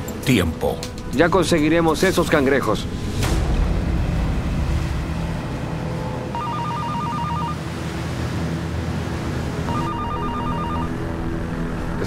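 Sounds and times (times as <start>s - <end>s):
steady low rumble: 0.9s - 6.5s
telephone warbling ring: 6.3s - 7.6s, 9.7s - 11.0s.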